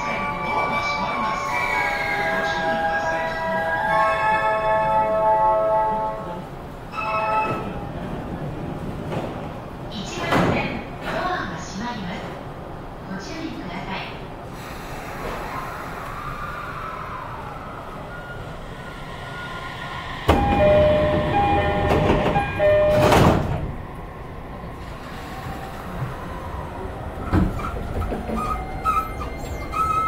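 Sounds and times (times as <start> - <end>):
train inverter whine: 15.2 - 29.6
sliding doors shutting thud: 20.3 - 23.8.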